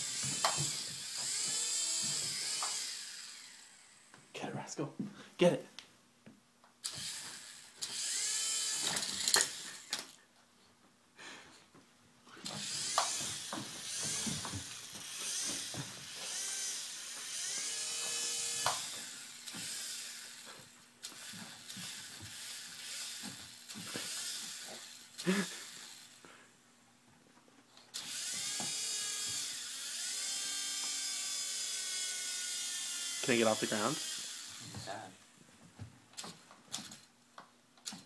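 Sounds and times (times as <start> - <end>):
rotor blades clattering on carpet: 0.0 - 3.4, 12.4 - 25.0
toy helicopter motors whining: 0.0 - 4.2, 6.8 - 10.2, 12.4 - 26.3, 27.9 - 35.2.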